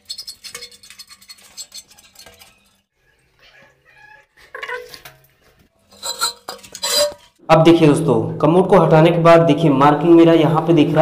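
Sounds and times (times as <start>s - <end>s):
scratching on floor tiles: 5.9s - 7.3s.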